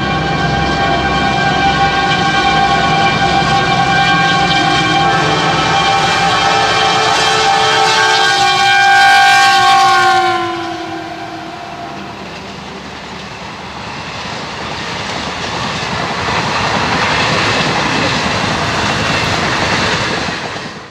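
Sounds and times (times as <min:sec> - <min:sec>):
locomotive horn: 0:00.0 - 0:13.0
train wheels clattering on rails: 0:11.9 - 0:20.9.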